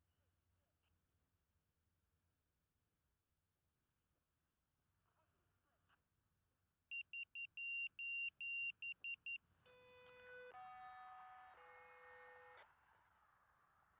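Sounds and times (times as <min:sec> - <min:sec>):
high electronic beeps: 0:06.9 - 0:09.4.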